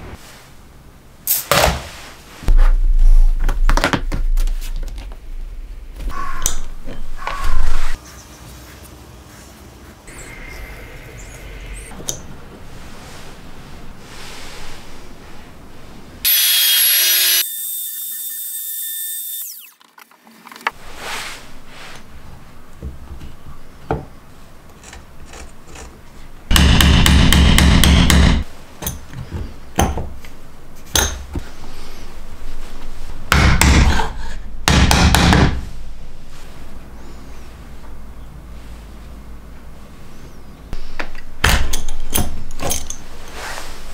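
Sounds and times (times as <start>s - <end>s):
trim router running: 16.3s - 19.7s.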